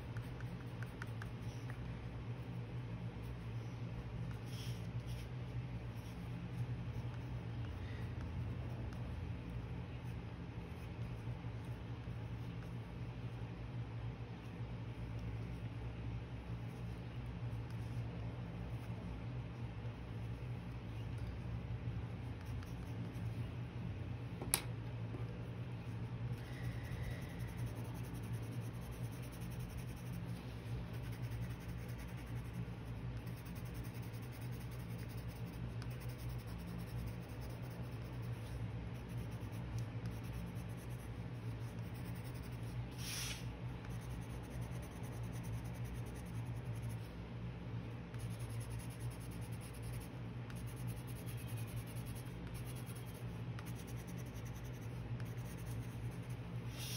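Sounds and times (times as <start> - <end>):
pencil scratching on paper: 4.2 - 7.5, 26.4 - 47.1, 48.1 - 56.9.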